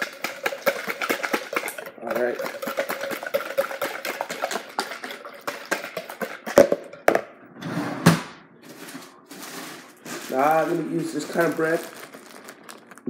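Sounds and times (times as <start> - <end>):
batter being beaten: 0.0 - 7.2
container knocking: 0.0 - 7.2.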